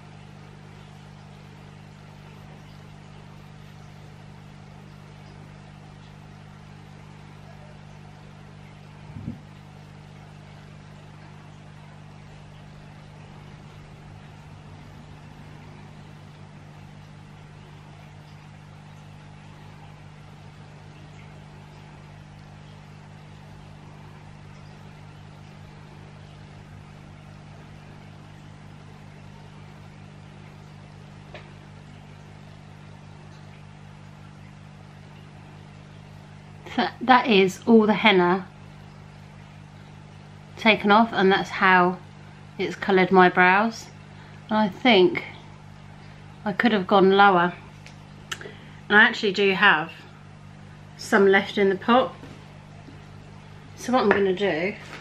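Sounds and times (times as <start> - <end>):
low steady hum: 0.0 - 55.0
faint tick: 47.8 - 48.5.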